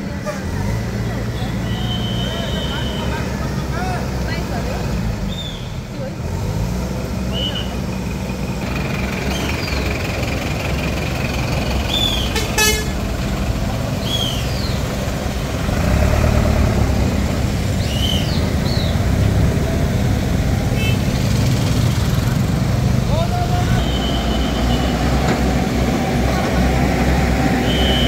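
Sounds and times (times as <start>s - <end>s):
diesel engine running: 0.0s - 28.0s
vehicle horn toot: 1.4s - 3.3s, 12.3s - 13.0s, 20.8s - 21.1s, 23.6s - 25.3s, 27.6s - 28.0s.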